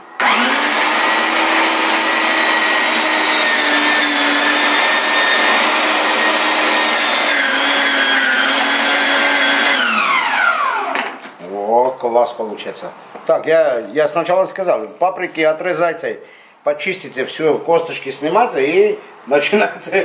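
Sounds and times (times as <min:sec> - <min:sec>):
electric meat grinder whine: 0:00.0 - 0:11.2.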